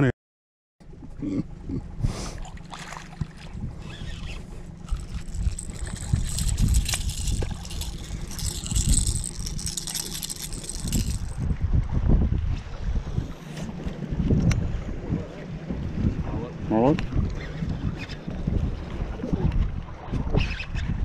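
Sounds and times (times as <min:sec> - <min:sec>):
wind buffeting microphone: 0:03.5 - 0:21.0
fishing gear knocks and rustles: 0:04.8 - 0:11.4.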